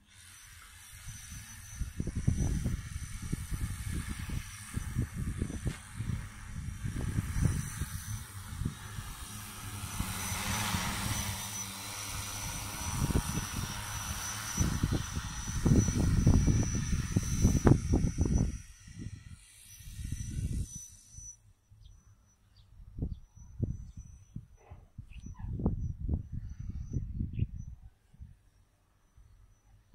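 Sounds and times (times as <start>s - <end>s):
drone propeller hum: 0.0s - 24.5s
wind rumble on microphone: 0.8s - 21.3s, 22.6s - 28.6s.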